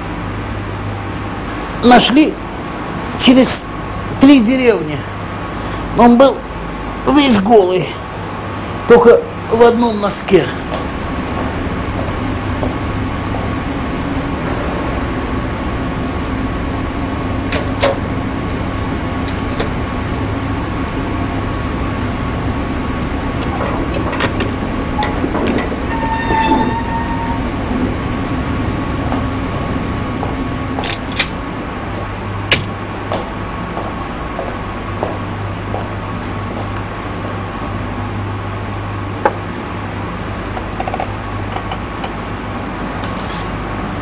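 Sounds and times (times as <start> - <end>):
machinery drone: 8.0 - 40.6
brief squeal: 25.9 - 27.5.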